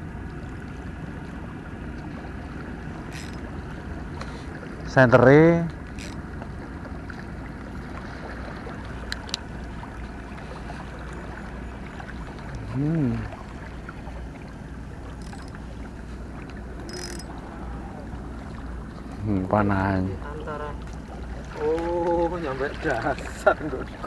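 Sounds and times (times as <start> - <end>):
boat engine droning: 0.0 - 24.0
faint clicks: 3.1 - 3.4, 5.7 - 6.2, 9.1 - 9.5, 15.2 - 15.6, 16.4 - 17.4.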